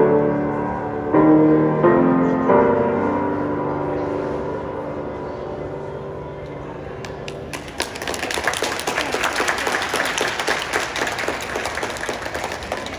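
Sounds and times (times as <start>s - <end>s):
grand piano chord: 0.0s - 6.6s
audience applause: 7.3s - 12.9s.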